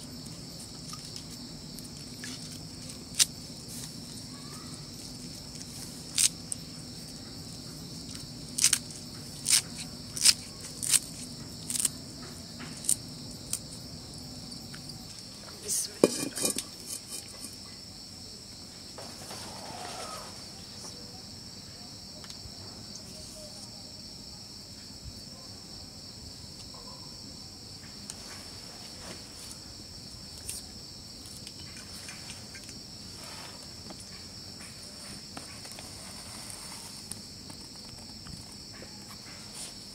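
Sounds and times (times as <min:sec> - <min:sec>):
crickets chirping: 0:00.0 - 0:39.9
blade trimming bean pods: 0:08.1 - 0:12.0.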